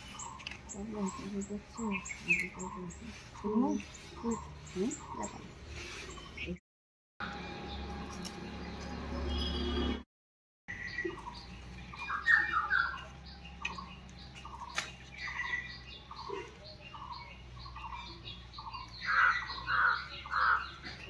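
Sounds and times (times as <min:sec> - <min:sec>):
birds chirping: 0:00.0 - 0:06.6, 0:07.2 - 0:10.0, 0:10.7 - 0:21.0
birds squawking: 0:10.7 - 0:21.0.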